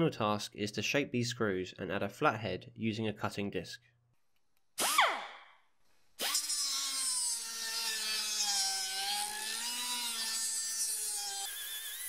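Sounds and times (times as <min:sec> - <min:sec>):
die grinder cutting steel: 0:06.2 - 0:12.0.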